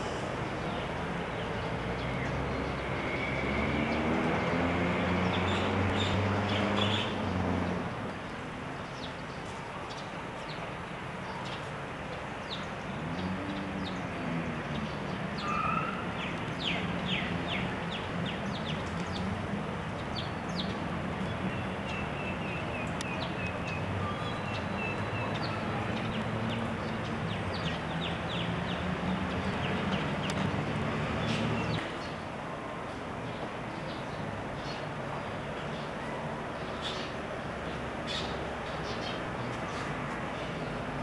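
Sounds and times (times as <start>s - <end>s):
thin whistling call: 15.4s - 16.0s.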